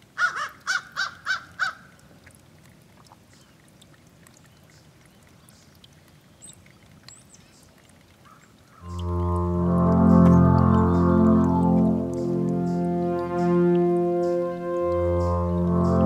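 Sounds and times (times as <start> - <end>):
stream trickling: 0.0 - 16.0
crow cawing: 0.2 - 1.8.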